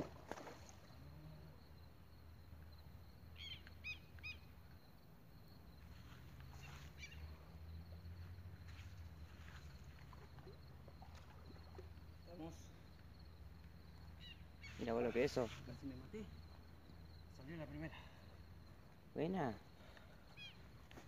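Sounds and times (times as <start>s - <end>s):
bird chirps: 3.3s - 4.5s, 6.5s - 7.4s, 14.1s - 15.0s, 20.3s - 20.7s.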